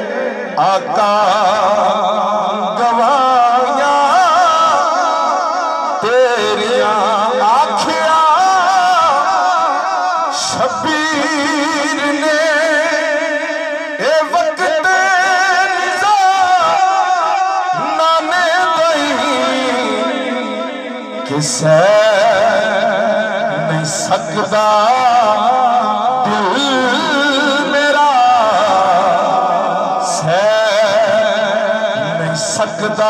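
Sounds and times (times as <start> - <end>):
man singing into microphone: 0.0 - 33.0.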